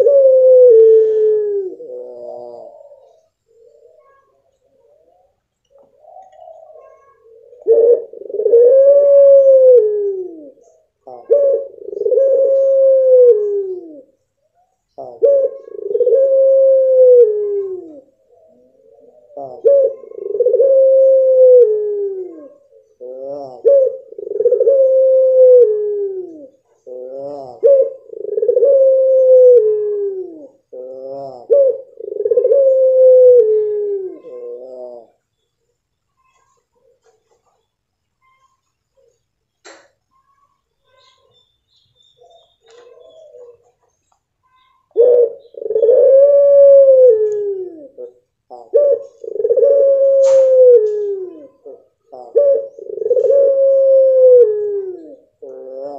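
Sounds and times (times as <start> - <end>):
dove cooing: 0.0 - 41.4, 42.1 - 55.9.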